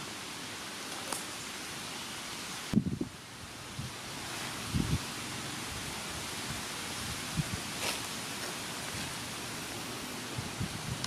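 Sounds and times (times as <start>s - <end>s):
outdoor ambient hiss: 0.0s - 11.0s.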